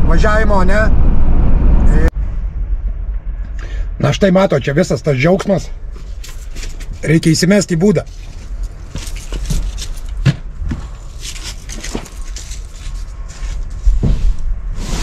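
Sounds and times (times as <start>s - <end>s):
low steady rumble: 0.0s - 15.0s
footsteps: 5.9s - 7.3s, 8.0s - 14.5s.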